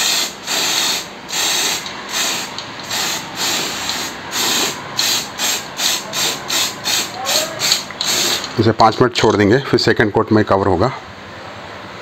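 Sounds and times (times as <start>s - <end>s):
spray paint can hissing: 0.0s - 8.5s.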